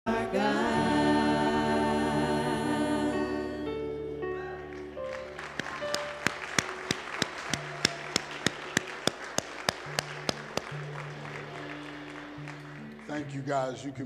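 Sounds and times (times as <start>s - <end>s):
hands clapping a steady beat: 4.7s - 13.3s.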